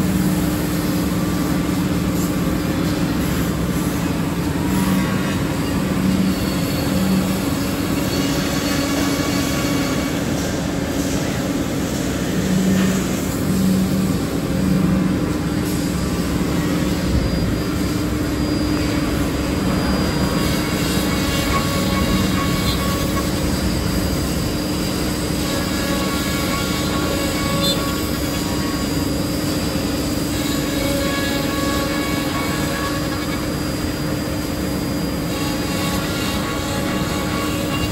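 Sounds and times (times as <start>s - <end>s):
milling machine cutting wood: 18.4s - 28.8s.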